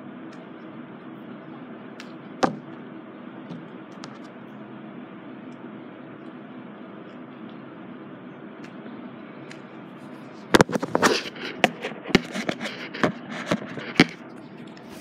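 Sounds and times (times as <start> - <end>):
phone handling knocks and rubbing: 2.4 - 2.7.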